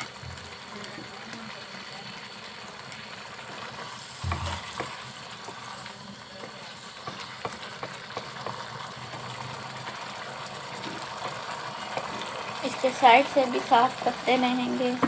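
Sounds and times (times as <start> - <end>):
curry sizzling in a pan: 0.0 - 15.0
wooden spatula scraping pan: 3.6 - 5.9.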